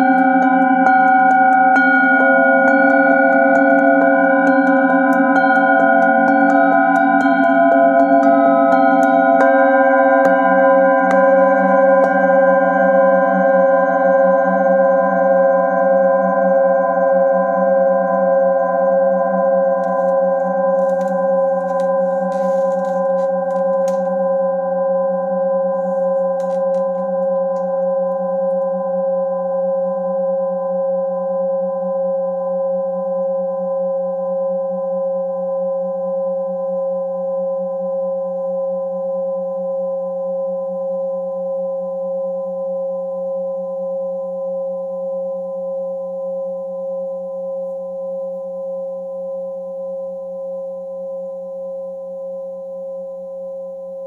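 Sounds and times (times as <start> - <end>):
singing bowls ringing: 0.0 - 50.2.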